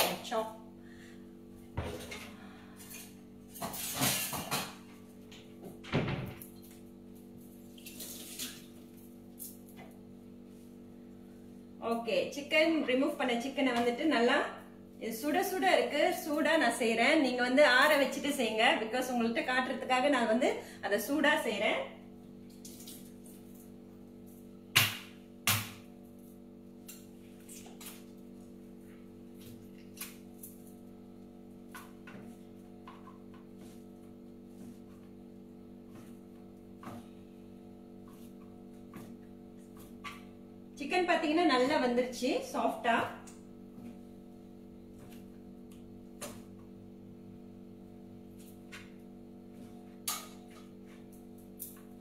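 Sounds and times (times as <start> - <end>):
steady low hum: 0.0 - 52.0
meat cleaver chopping on board: 24.7 - 25.9.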